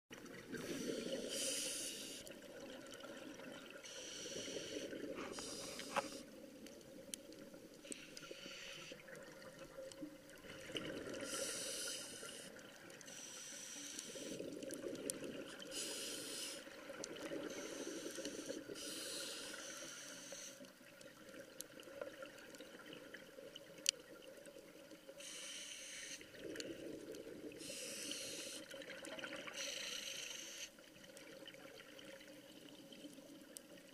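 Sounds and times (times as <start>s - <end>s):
hissing regulator inhalations: 0.6s - 2.3s, 3.8s - 6.3s, 7.8s - 9.0s, 11.2s - 14.4s, 15.7s - 16.8s, 17.4s - 20.7s, 25.2s - 26.2s, 27.6s - 28.7s, 29.6s - 30.7s
burble of exhaled bubbles: 9.0s - 11.3s.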